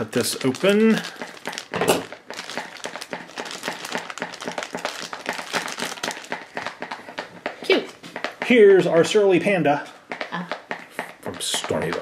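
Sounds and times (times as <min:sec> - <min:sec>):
scissors cutting plastic bag: 0:00.0 - 0:06.3
plastic crinkling: 0:00.0 - 0:06.8.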